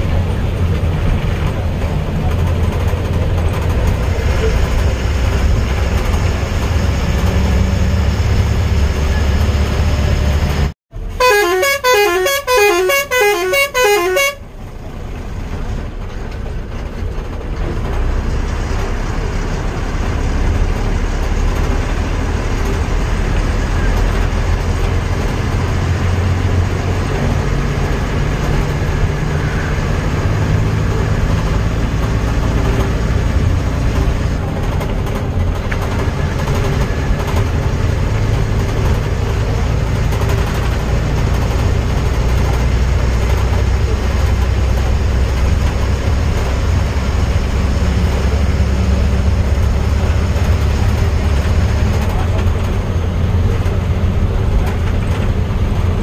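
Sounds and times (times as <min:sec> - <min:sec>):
vehicle engine and road rumble: 0:00.0 - 0:56.0
musical car horn: 0:11.1 - 0:14.5.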